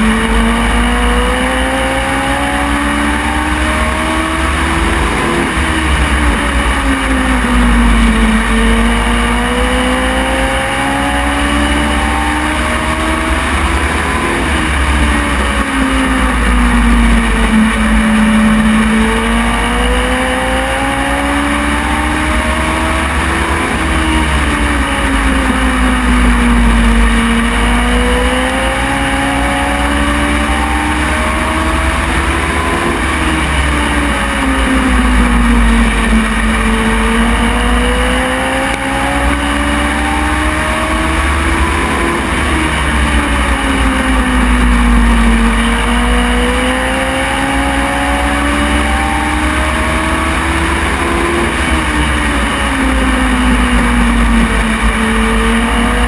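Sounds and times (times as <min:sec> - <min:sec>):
heavy low rumble: 0:00.0 - 0:48.5
race car engine revving: 0:00.0 - 0:56.0.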